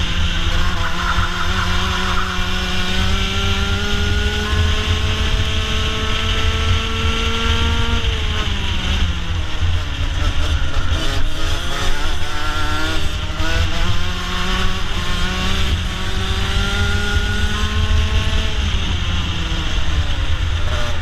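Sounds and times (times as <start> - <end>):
kart engine revving: 0.0 - 21.0.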